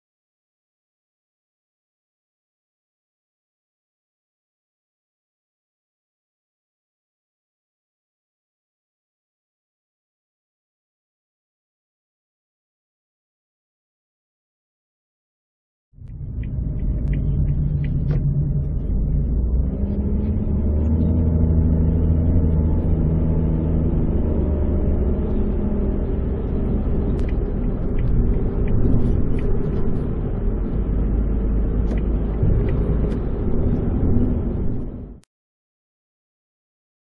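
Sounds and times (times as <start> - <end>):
car cabin road and engine rumble: 16.0 - 35.2.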